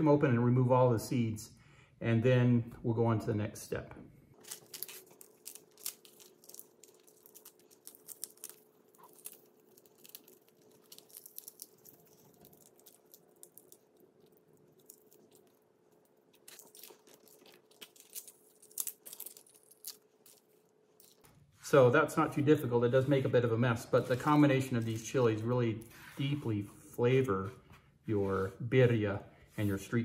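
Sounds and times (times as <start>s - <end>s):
dried chilies crackling: 4.4s - 21.4s.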